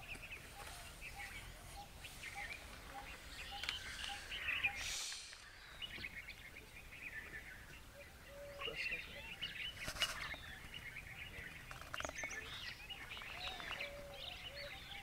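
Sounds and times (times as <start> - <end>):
birds chirping: 0.0 - 15.0
brief hiss: 3.8 - 5.6.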